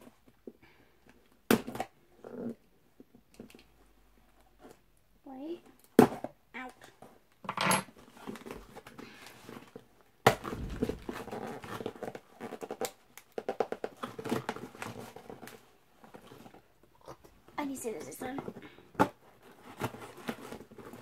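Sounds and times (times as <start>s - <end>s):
packaging crinkling and rustling: 8.0s - 17.2s.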